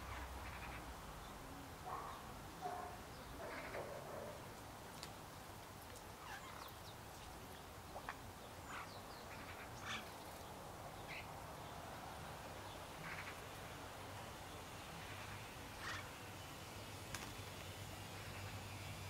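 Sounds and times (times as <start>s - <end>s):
birds chirping: 6.2s - 11.9s.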